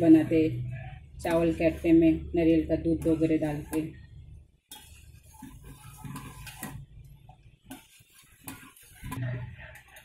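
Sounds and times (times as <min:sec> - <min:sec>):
ladle stirring liquid in pot: 0:03.0 - 0:10.0.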